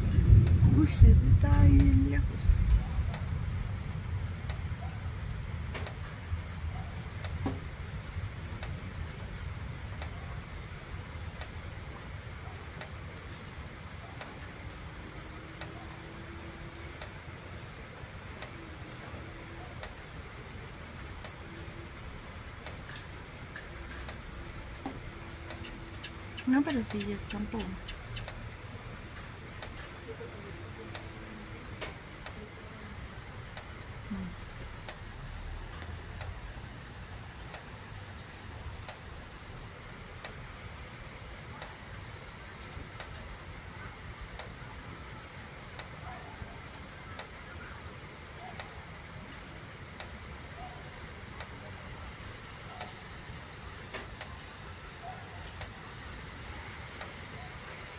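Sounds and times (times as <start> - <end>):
low rumble: 0.0 - 4.4
rain hiss: 0.0 - 57.9
faint drips: 4.4 - 57.9
sharp ticks: 25.4 - 28.4.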